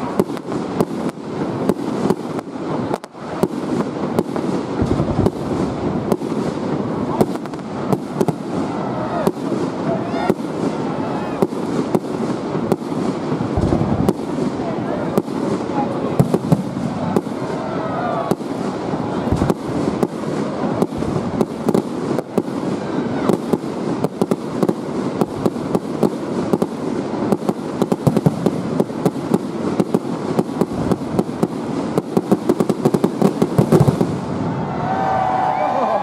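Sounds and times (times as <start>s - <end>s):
fireworks crackling: 0.0s - 36.0s.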